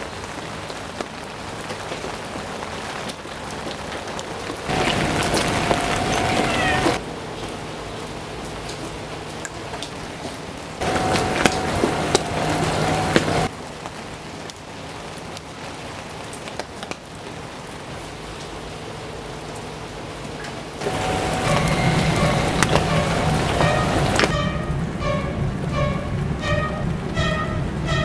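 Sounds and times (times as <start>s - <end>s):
steady rain: 0.0s - 28.0s.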